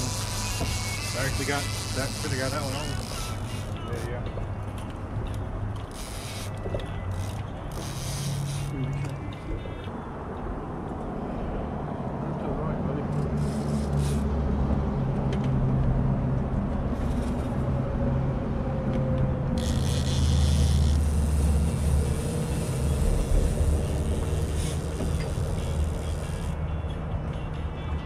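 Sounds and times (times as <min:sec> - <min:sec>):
boat motor humming: 0:00.0 - 0:04.8, 0:05.6 - 0:09.9, 0:19.2 - 0:26.7.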